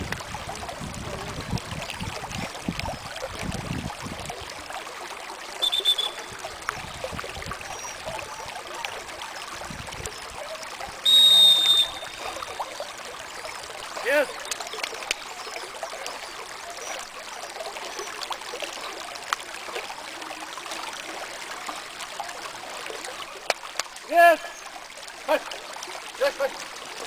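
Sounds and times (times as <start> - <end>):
lapping lake water: 0.0 - 27.0
dog whistle blasts: 5.6 - 6.3, 11.0 - 12.4.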